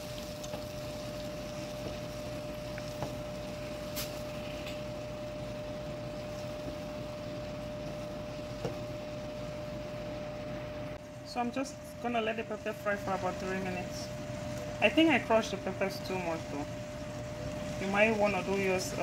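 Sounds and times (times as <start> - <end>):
wooden spoon stirring in frying pan: 0.0 - 7.0
steady hum with held tone: 0.0 - 19.0.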